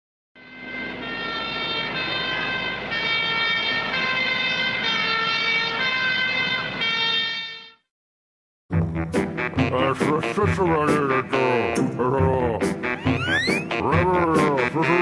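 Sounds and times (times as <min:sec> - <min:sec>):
siren-like electronic tones: 0:13.0 - 0:13.7.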